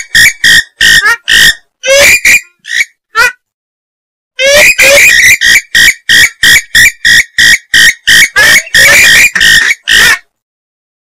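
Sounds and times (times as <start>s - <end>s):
swamphen harsh calls: 4.4s - 10.3s.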